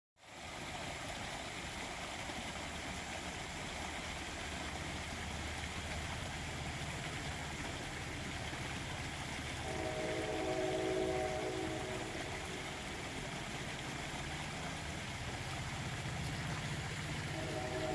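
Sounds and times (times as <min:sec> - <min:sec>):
creek water over rocks: 0:00.2 - 0:17.9
multi-tone horn: 0:09.6 - 0:12.6, 0:17.3 - 0:17.9.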